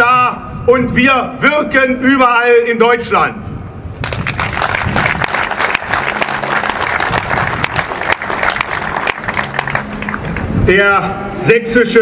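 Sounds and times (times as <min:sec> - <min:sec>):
crowd applauding: 0:04.0 - 0:10.6.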